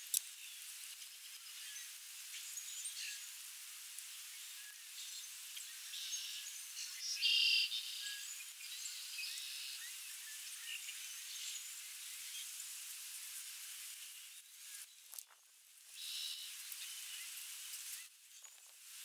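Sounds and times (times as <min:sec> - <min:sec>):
steady hiss: 0:00.0 - 0:19.0
small birds chirping: 0:04.0 - 0:12.6, 0:14.2 - 0:18.9.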